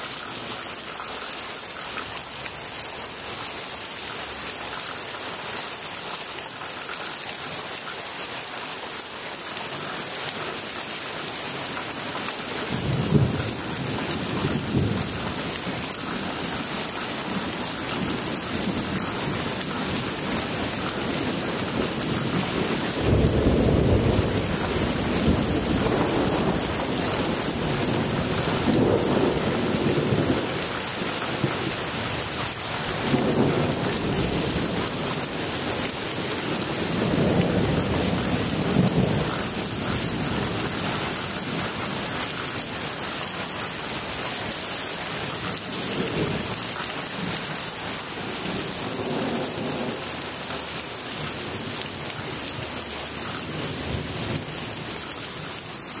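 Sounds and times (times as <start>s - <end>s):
heavy rain: 0.0s - 56.0s
distant thunder rumbles: 17.5s - 30.7s.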